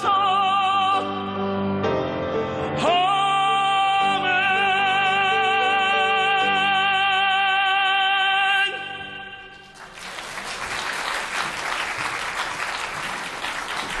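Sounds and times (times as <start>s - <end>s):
tenor singing with vibrato: 2.8s - 9.7s
audience applauding: 9.7s - 14.0s.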